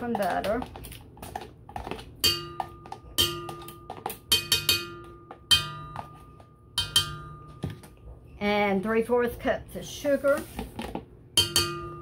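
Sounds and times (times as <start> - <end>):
metal bowl ringing: 2.2 - 8.0, 11.4 - 12.0.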